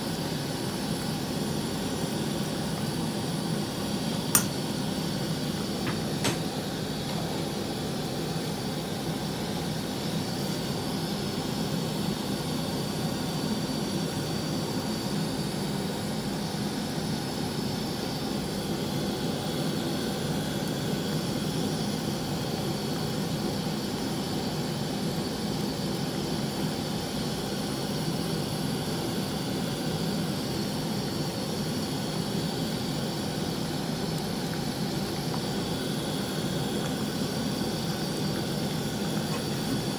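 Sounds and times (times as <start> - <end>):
stove burner rushing: 0.0 - 11.5, 31.8 - 39.9
ladle clinking against pot: 4.4 - 4.6.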